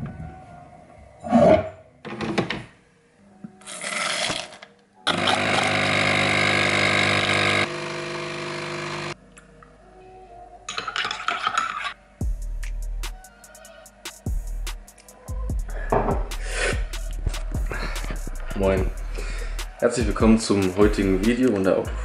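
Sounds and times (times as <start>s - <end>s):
kitchen appliance humming: 5.1s - 9.2s
spoon clinking in ceramic mug: 10.7s - 11.9s.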